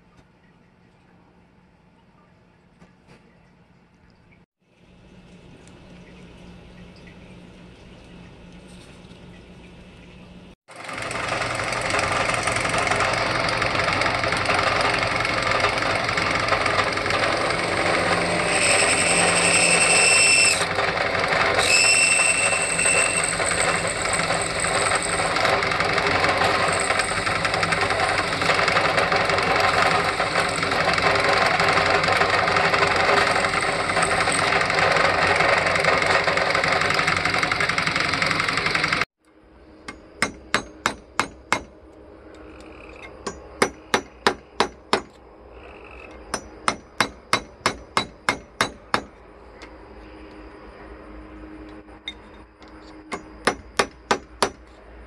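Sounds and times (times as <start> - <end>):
drill press drilling metal: 10.8 - 39.0.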